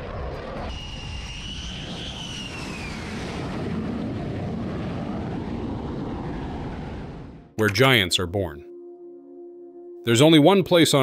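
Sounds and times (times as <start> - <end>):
jet engine whine: 0.0 - 7.5
jet engine rumble: 0.0 - 7.6.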